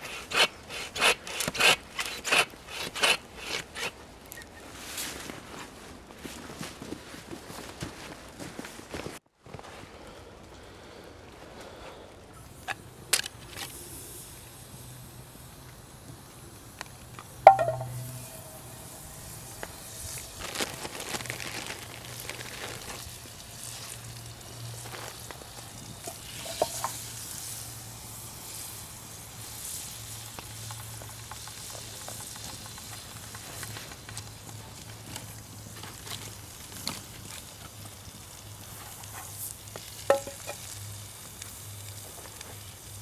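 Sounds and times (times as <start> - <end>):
metallic clink: 17.5 - 19.1
food sizzling in a pan: 17.5 - 32.9.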